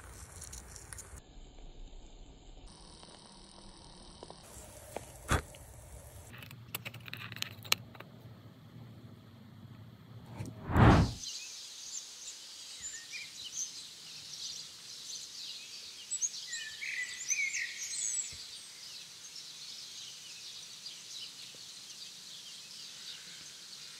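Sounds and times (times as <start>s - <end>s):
loud whoosh: 10.3s - 11.2s.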